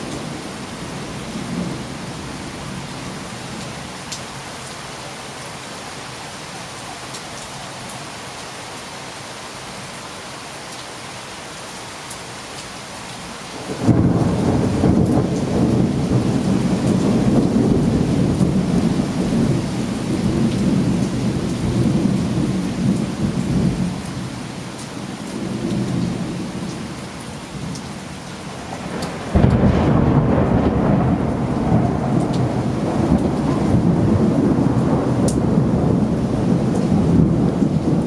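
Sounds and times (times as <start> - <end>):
heavy rain: 0.0 - 38.0
loud thunderclap: 13.7 - 19.6, 28.7 - 38.0
rolling thunder: 13.7 - 24.0, 28.6 - 38.0.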